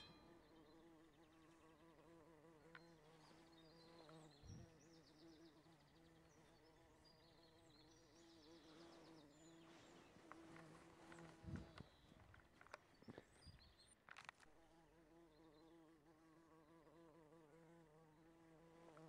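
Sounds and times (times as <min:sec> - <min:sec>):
birds chirping: 0:00.0 - 0:01.7
insect buzzing: 0:00.0 - 0:11.8, 0:14.6 - 0:19.0.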